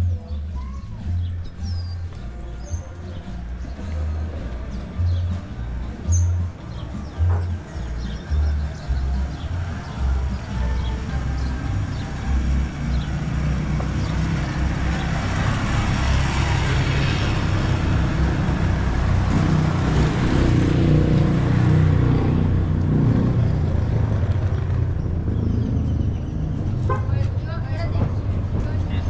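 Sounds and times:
vehicle engine passing: 0:09.0 - 0:29.0.

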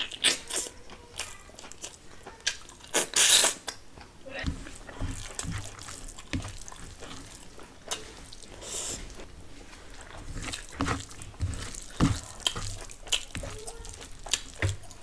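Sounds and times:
wet mouth chewing sounds: 0:00.0 - 0:09.3, 0:09.9 - 0:15.0
rice squished by hand: 0:04.4 - 0:15.0.

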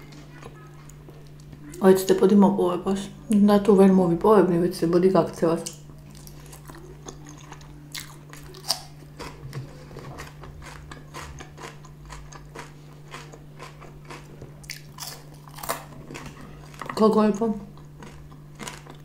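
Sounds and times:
low hum: 0:00.0 - 0:19.0
chewing crunchy food: 0:05.6 - 0:19.0.

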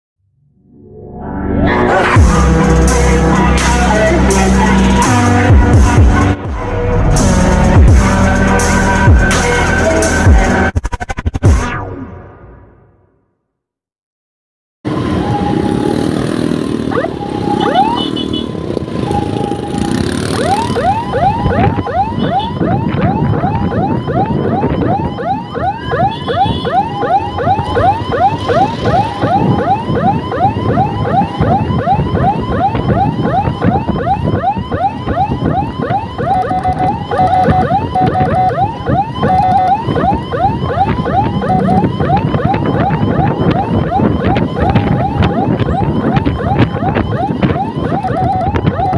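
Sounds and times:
road noise: 0:01.5 - 0:10.7, 0:14.9 - 0:48.9
siren steady tone blasts: 0:14.9 - 0:48.9
siren yelping: 0:14.9 - 0:48.9
scooter engine: 0:15.3 - 0:21.4.

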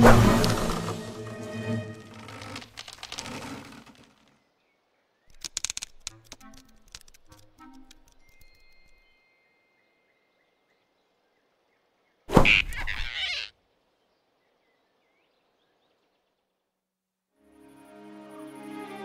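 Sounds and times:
whoosh-and-hit sound effect: 0:00.0 - 0:01.1.

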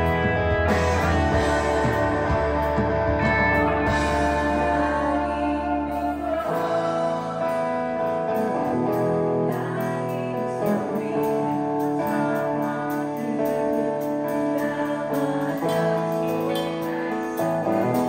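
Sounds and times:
rock band playing: 0:00.0 - 0:18.0
woman singing: 0:03.6 - 0:18.0.

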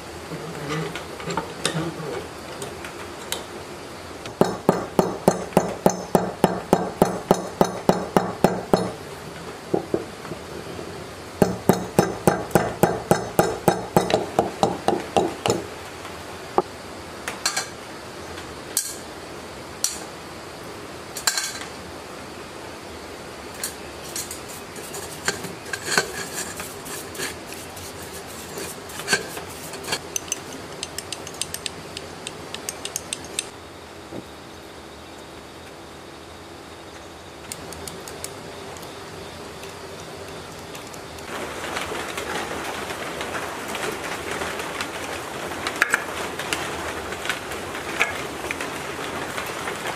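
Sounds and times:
hammer tapping steel part: 0:04.3 - 0:09.0, 0:11.4 - 0:15.7.

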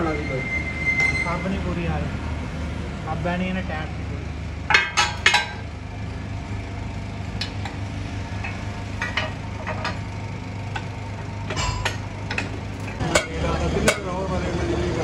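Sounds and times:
workshop machinery hum: 0:00.0 - 0:15.0
metal clinks and knocks: 0:04.7 - 0:05.6, 0:07.3 - 0:14.1.

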